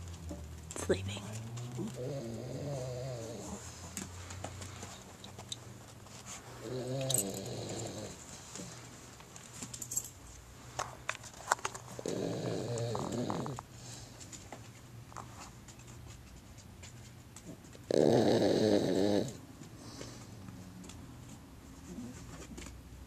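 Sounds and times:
dog snoring: 1.8 - 3.8, 6.6 - 8.2, 12.0 - 13.6, 17.9 - 19.4.

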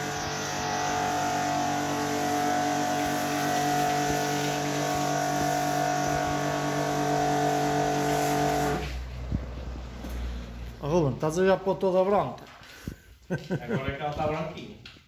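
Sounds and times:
water jet hissing: 0.0 - 9.0
pressure washer motor droning: 0.0 - 10.8.

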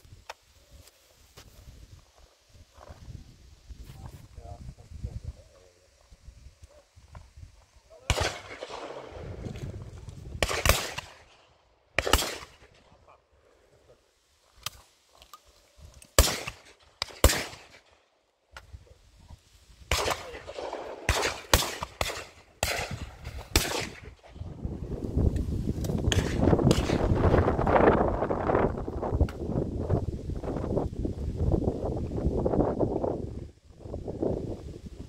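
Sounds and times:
shotgun shots: 8.0 - 9.2, 10.4 - 11.4, 12.0 - 12.8, 16.2 - 17.9, 19.9 - 24.4, 26.1 - 27.2.

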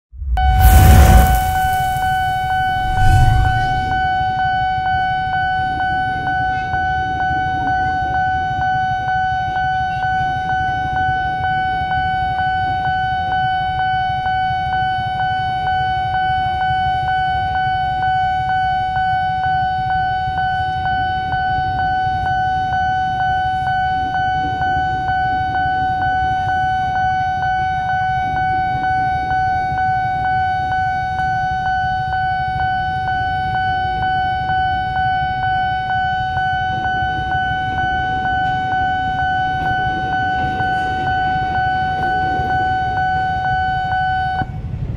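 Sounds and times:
electric train rumbling past: 0.1 - 4.4.

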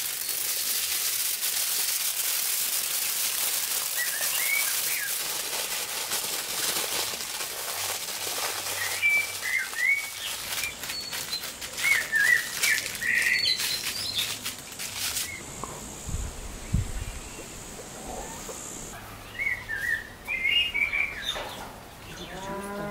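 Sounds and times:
aluminium foil crinkling: 0.0 - 15.5
small birds chirping: 3.8 - 5.3, 8.6 - 22.6.

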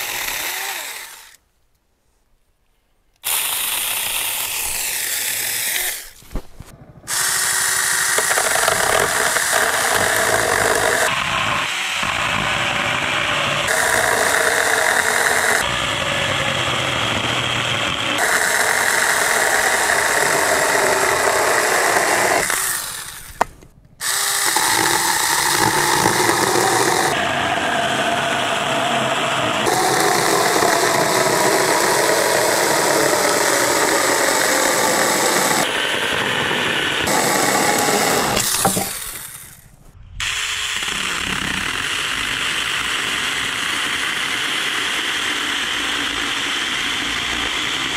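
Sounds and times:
electric chainsaw cutting wood: 0.0 - 1.4, 3.2 - 6.2, 7.1 - 39.6, 40.2 - 47.9.

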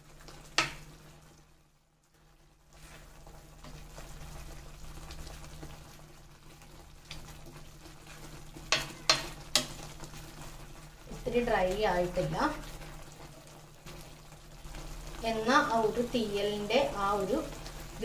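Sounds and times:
curry simmering and sizzling: 0.0 - 18.0
spoon knocking against pan: 8.7 - 9.7.

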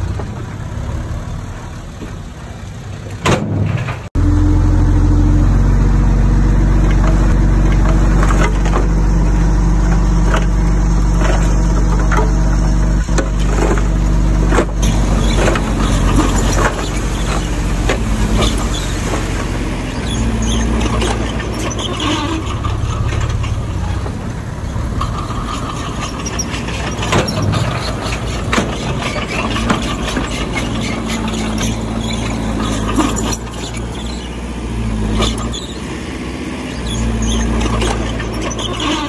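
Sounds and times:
bulldozer diesel engine running: 0.0 - 39.0
metallic clanks and knocks: 24.9 - 33.9.

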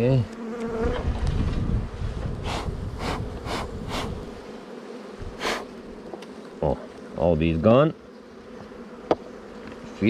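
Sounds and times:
honeybees humming: 0.0 - 10.0
wind rumbling on microphone: 0.8 - 4.4.

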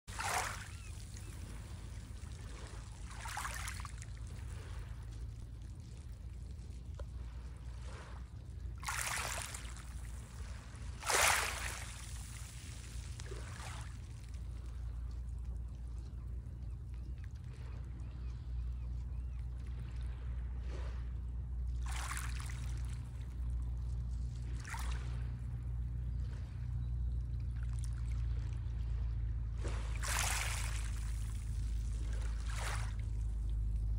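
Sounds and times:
waves washing over pebbles: 0.1 - 5.6, 8.8 - 14.2, 29.6 - 33.7
steady low rumble: 0.1 - 33.9
waves washing onto pebble beach: 11.0 - 13.5.

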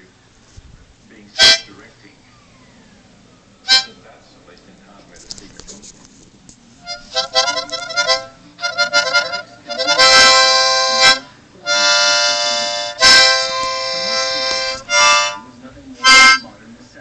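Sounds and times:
harmonica chords: 1.3 - 1.9, 3.6 - 4.0, 6.8 - 16.6.

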